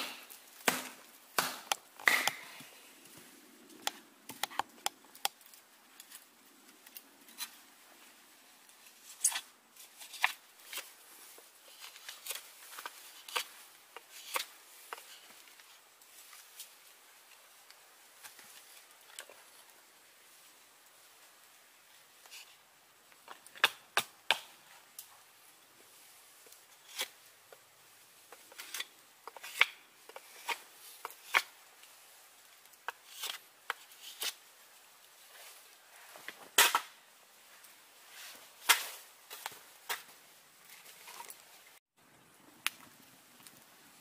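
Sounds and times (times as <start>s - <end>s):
knife carving and splitting wood: 0.0s - 2.7s, 8.8s - 10.9s, 11.7s - 15.7s, 26.5s - 27.6s, 28.3s - 31.7s, 32.7s - 34.5s.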